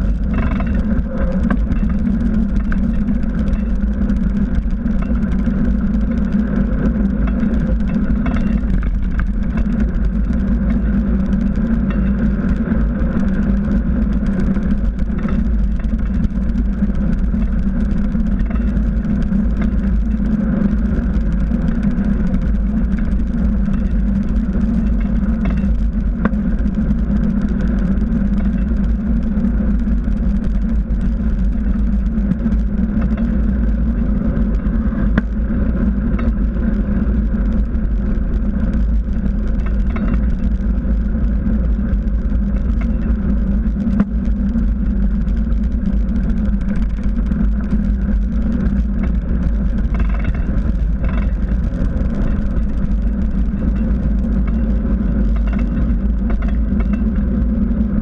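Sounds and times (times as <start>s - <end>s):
bike tyre rolling on asphalt: 0.0s - 58.0s.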